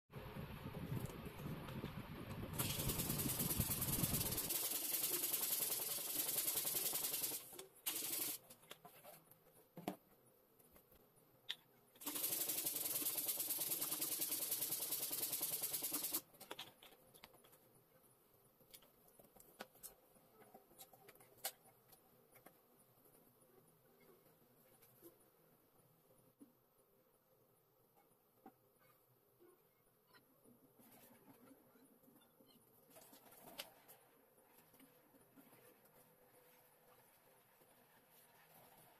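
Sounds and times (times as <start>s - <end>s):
air hissing through balloon pump: 2.5s - 8.4s, 12.0s - 16.2s.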